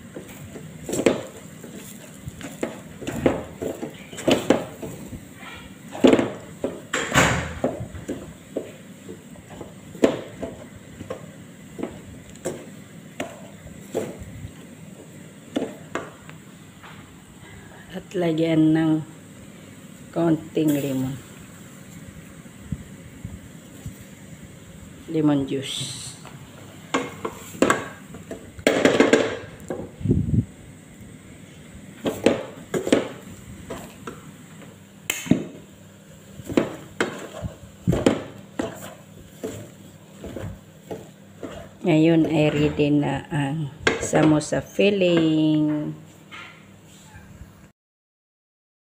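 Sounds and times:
spatula stirring thick mash: 0:00.0 - 0:06.9, 0:36.3 - 0:42.5
wooden spatula knocking on pot: 0:00.1 - 0:01.4, 0:02.4 - 0:05.0, 0:05.9 - 0:14.2, 0:26.9 - 0:29.9, 0:32.0 - 0:34.2, 0:36.4 - 0:43.0.

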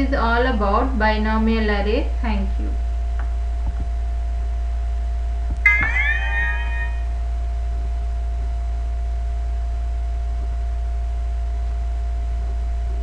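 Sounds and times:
low electrical hum: 0:00.0 - 0:13.0
computer alert chime: 0:05.7 - 0:07.1
thin steady tone: 0:05.7 - 0:07.1.

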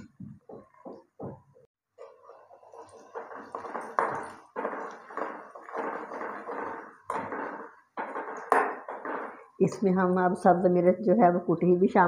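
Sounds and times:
spoon scraping metal pan: 0:02.0 - 0:09.6.

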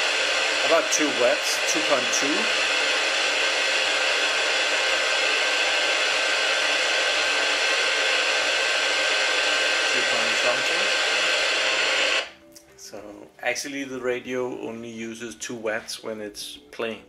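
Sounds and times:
radio static hiss: 0:00.0 - 0:12.4.

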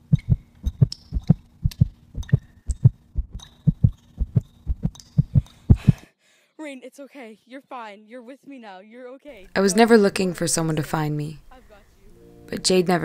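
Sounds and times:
heartbeat thumps: 0:00.0 - 0:06.0
faint steady hum: 0:00.0 - 0:13.0.

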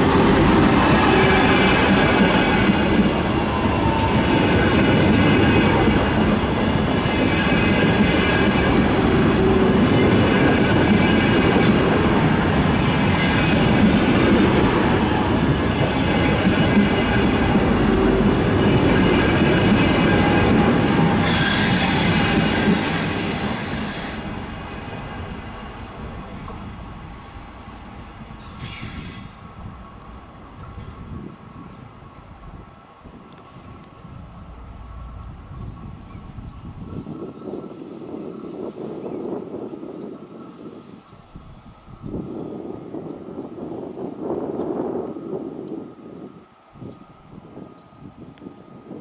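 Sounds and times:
train rolling past: 0:00.0 - 0:49.0
sharp wheel screeches: 0:21.1 - 0:24.4, 0:28.4 - 0:29.4.

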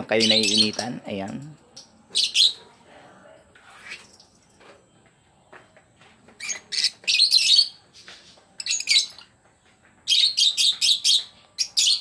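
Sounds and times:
lovebirds chattering squawks: 0:00.0 - 0:01.0, 0:06.4 - 0:07.8.

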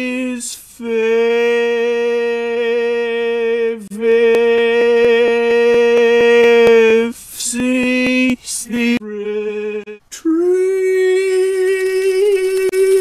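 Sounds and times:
man singing a long note: 0:00.0 - 0:13.0
sharp even clicks: 0:07.9 - 0:08.5.

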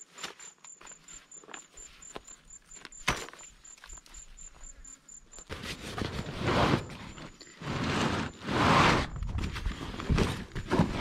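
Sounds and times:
faint high chirp: 0:00.0 - 0:05.5.

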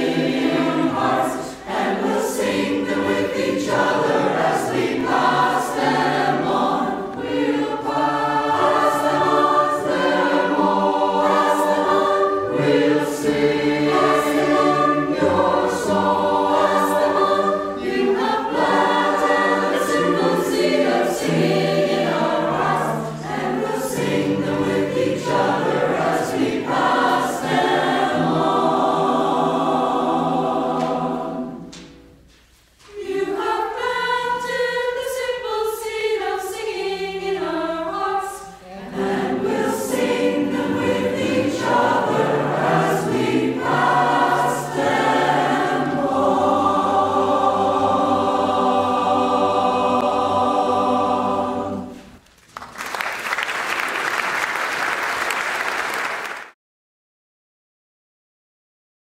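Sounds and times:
choir singing: 0:00.0 - 0:52.2.

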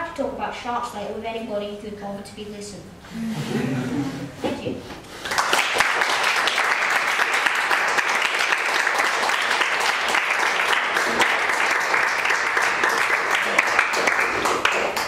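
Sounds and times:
audience applauding: 0:05.2 - 0:15.0.

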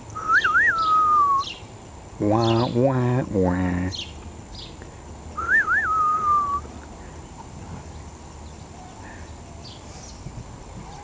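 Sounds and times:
person whistling: 0:00.2 - 0:01.4, 0:05.4 - 0:06.7.

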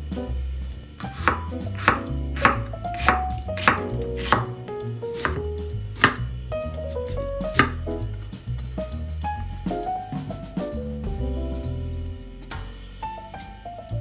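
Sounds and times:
knife slicing onion on board: 0:01.0 - 0:06.3, 0:07.0 - 0:07.8.

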